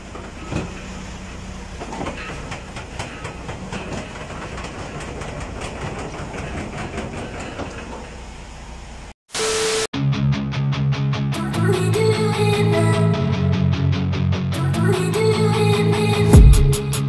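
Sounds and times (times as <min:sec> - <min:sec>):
truck rumbling slowly: 0:00.0 - 0:09.1.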